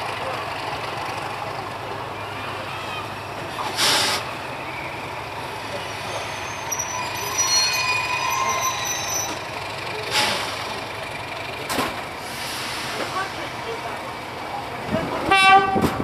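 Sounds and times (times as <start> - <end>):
locomotive engine humming: 0.0 - 15.8
wheels squealing: 2.6 - 11.1.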